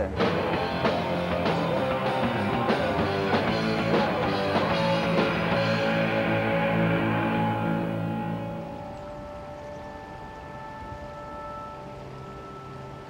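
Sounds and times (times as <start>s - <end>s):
drums playing a steady beat: 0.0s - 8.5s
electric guitar: 0.0s - 13.0s.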